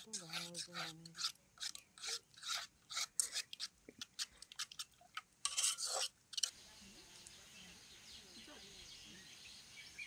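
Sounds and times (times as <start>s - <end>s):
spoon scraping batter in metal bowl: 0.0s - 6.6s.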